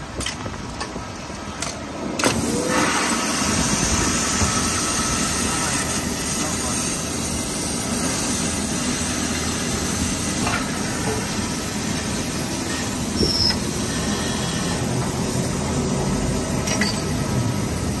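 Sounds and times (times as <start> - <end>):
brief high squeak: 13.1 - 13.7.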